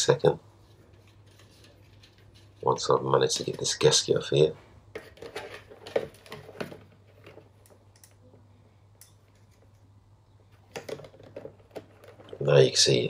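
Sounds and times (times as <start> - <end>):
plastic parts knocking: 4.9 - 7.8, 10.5 - 12.8.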